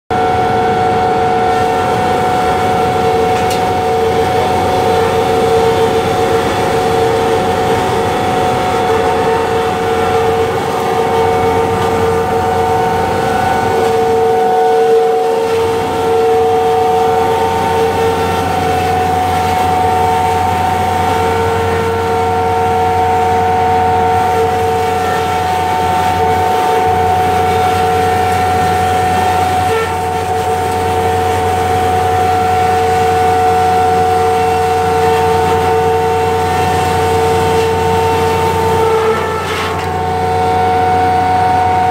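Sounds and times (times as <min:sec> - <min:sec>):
sawdust machine grinding wood: 0:00.2 - 0:41.9.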